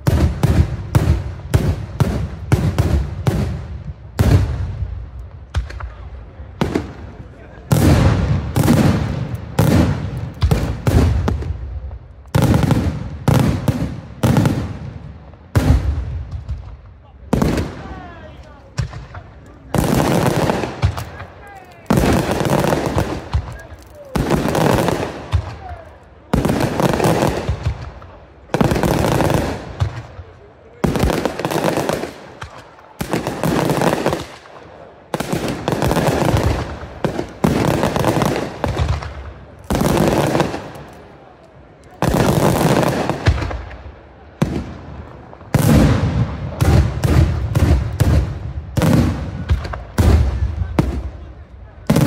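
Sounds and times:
crackling of firework stars: 0.0s - 52.0s.

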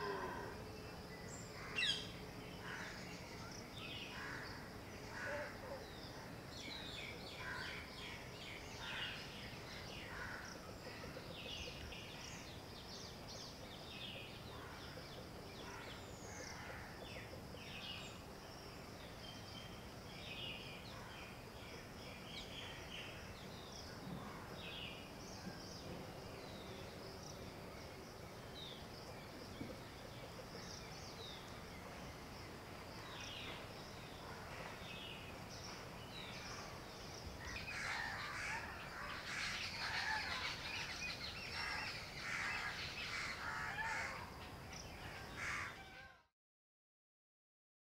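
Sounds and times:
high insect drone: 0.0s - 5.6s
faint background hiss: 0.0s - 43.4s
bird calls and chirps: 33.0s - 46.2s.

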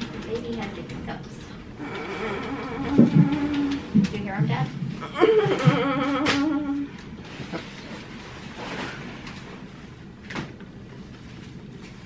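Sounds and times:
woman moaning: 1.8s - 4.0s, 5.0s - 7.0s.

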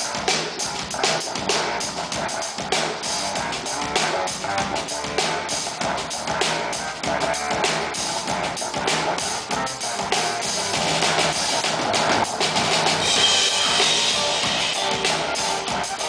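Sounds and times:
electric bass guitar: 0.0s - 16.0s
live rock band playing: 0.0s - 16.0s
bright high wash: 13.0s - 15.0s.

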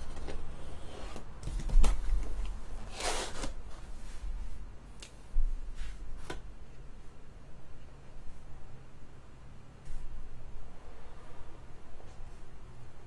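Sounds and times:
cardboard scraping: 2.8s - 4.2s.

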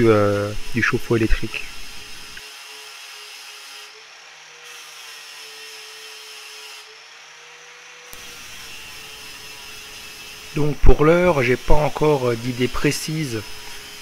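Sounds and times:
angle grinder on metal: 0.0s - 14.0s.

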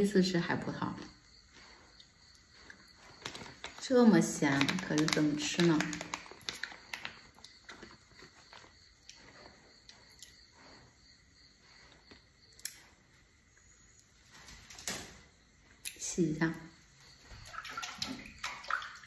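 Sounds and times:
plastic bag crinkling: 3.0s - 8.6s.

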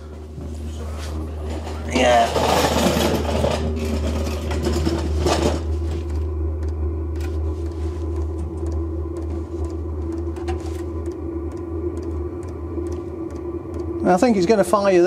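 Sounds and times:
heater blower humming: 0.0s - 15.0s
fuel pump ticking: 6.6s - 14.6s.

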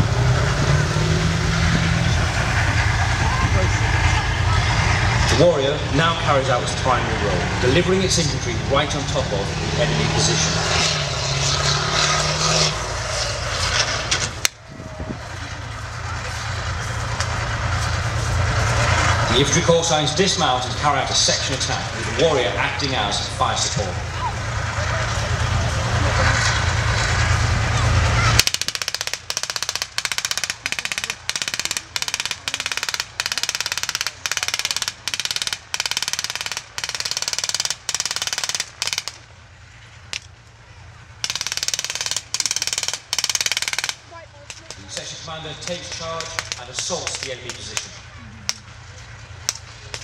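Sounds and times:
vehicle engine running: 0.0s - 50.0s
wind noise on microphone: 14.6s - 15.5s
automatic gunfire bursts: 28.4s - 39.2s, 41.2s - 44.1s, 45.7s - 47.2s.

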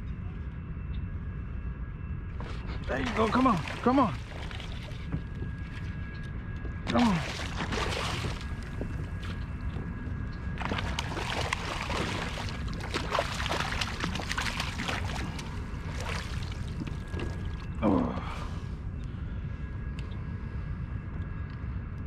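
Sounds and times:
low rumble: 0.0s - 22.0s
fish splashing at surface: 7.0s - 8.6s, 10.6s - 17.6s.

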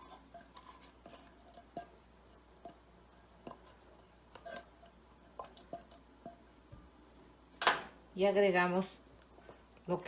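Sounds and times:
spatula scraping a tin can: 0.0s - 2.0s, 2.6s - 6.4s.

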